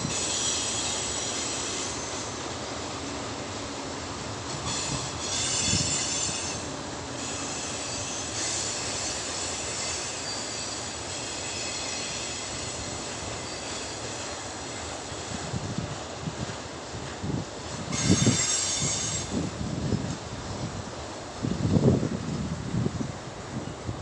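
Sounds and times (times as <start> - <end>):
train brakes squealing: 0.0 - 3.2, 4.5 - 15.8, 17.3 - 20.1
train rumble: 0.0 - 24.0.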